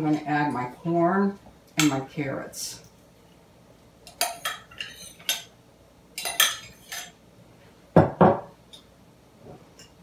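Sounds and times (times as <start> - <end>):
metal spoon clinking on glass and pan: 6.2 - 7.2.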